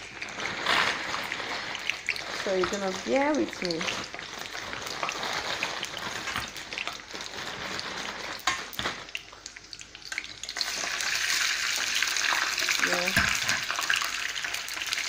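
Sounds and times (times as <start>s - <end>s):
chips sizzling in hot oil: 0.0s - 15.0s.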